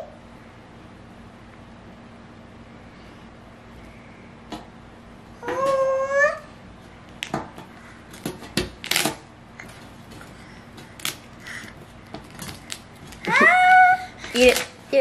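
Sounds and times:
baby whining: 5.4 - 6.5, 13.2 - 14.4.

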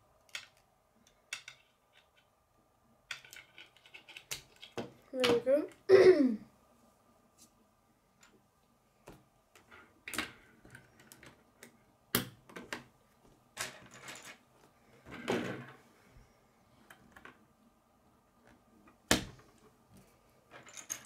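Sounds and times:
plastic pieces clattering on wood: 0.2 - 2.2, 3.1 - 5.4
plastic pieces clicking together: 0.2 - 2.3, 3.1 - 5.4, 10.1 - 12.9.

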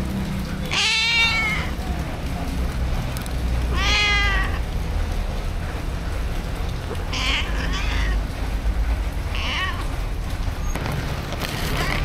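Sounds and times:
cat meowing: 0.7 - 1.8, 3.7 - 4.7, 7.1 - 8.2, 9.3 - 10.0.

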